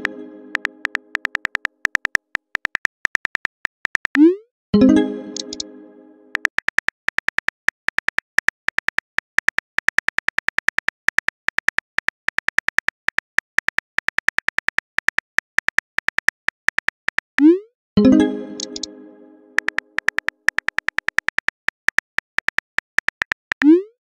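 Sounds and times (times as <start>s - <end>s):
phone keyboard clicks: 0.5s - 4.2s, 6.4s - 17.3s, 18.6s - 18.9s, 19.6s - 23.7s.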